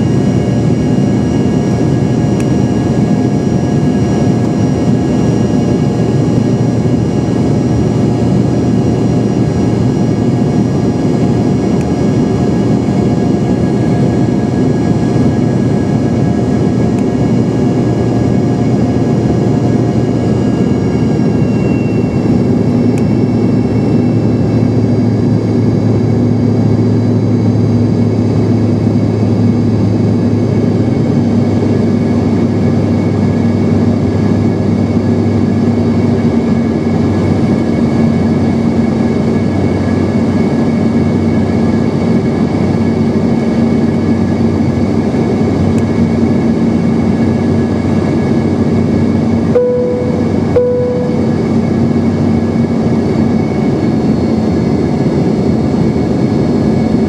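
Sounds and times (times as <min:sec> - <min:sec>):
aircraft cabin engine drone: 0:00.0 - 0:57.0
steady whining tones: 0:49.6 - 0:52.6.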